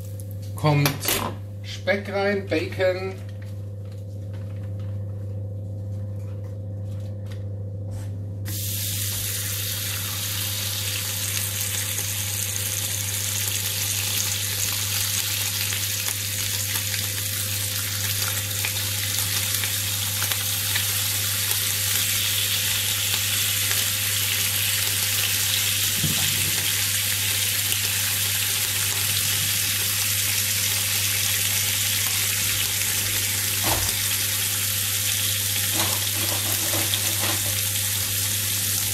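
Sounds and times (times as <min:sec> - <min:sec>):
bacon sizzling in frying pan: 0:08.5 - 0:38.9.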